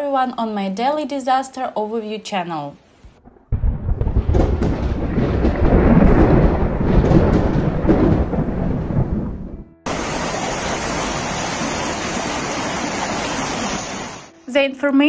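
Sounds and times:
deep thunder-like rumble: 3.0 - 10.3
floodwater rushing down a street: 9.9 - 14.4.

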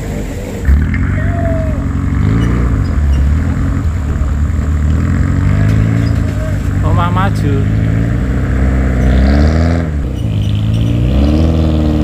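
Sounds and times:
engine revving under load: 0.0 - 12.0.

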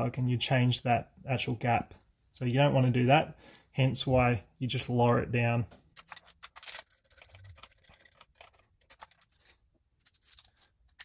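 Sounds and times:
metal socket clicking and scraping: 6.0 - 11.0.

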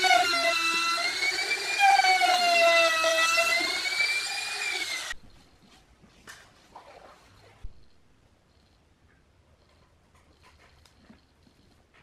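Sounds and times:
router cutting wood whining: 0.0 - 5.2.

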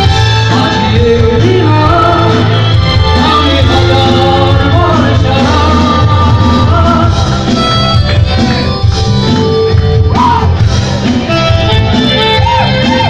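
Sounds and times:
person singing: 0.0 - 8.9
live rock band playing: 0.0 - 13.0.

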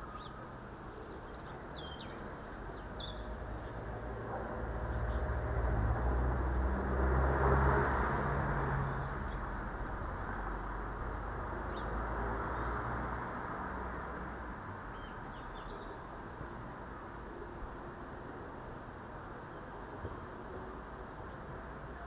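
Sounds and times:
high bird chirps: 1.0 - 3.3.

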